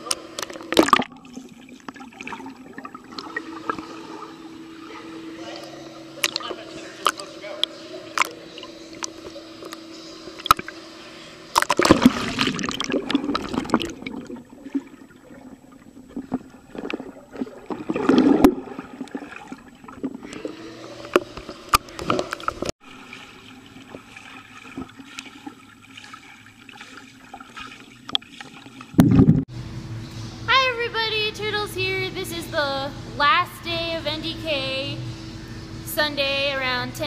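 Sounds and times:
pool water splashing and gurgling: 0:00.0 - 0:29.6
low steady hum: 0:00.0 - 0:37.0.

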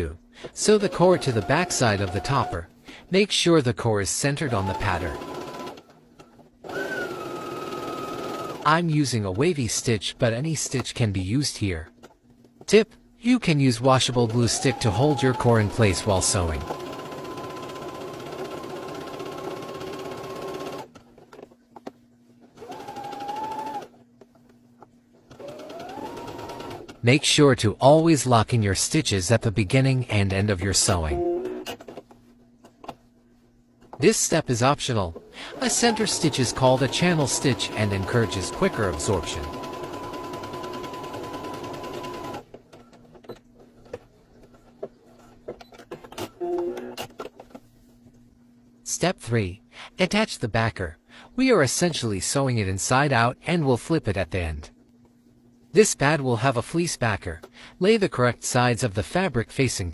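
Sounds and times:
sewing machine stitching: 0:00.6 - 0:02.6, 0:04.4 - 0:05.9, 0:06.6 - 0:08.7, 0:14.1 - 0:21.4, 0:22.5 - 0:24.0, 0:25.3 - 0:27.0, 0:35.5 - 0:42.9.

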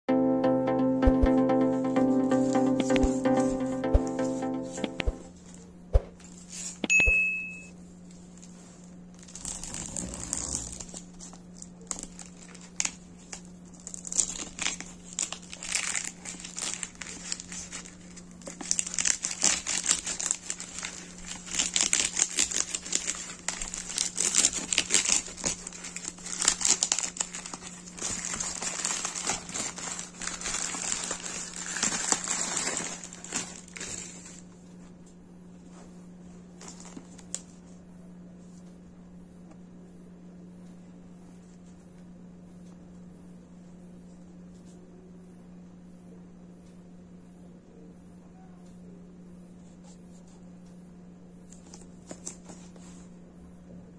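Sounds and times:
plastic wrap crinkling and tearing: 0:08.4 - 0:34.5.

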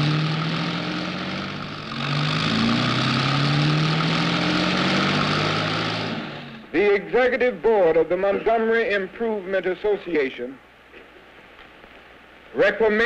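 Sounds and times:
bus engine driving past: 0:00.0 - 0:06.8
road rumble: 0:00.0 - 0:08.5.

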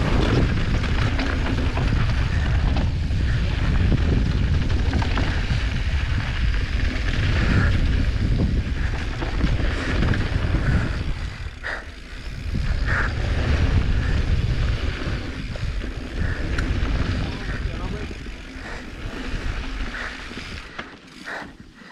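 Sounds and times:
wind buffeting microphone: 0:00.0 - 0:21.8
bike rumbling and rattling: 0:00.0 - 0:21.9.

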